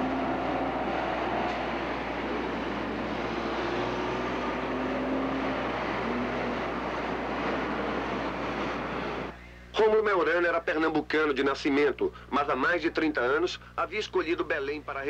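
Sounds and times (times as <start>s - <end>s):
bus and cars driving past: 0.0s - 9.4s
faint engine drone: 0.0s - 9.8s.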